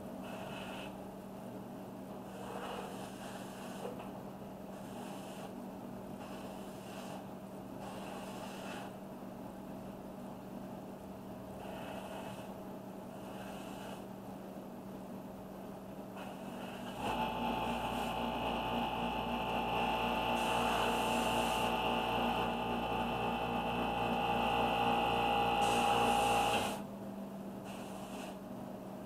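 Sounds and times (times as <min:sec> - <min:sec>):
airbrush spraying hiss: 0:07.8 - 0:08.9, 0:27.7 - 0:28.4.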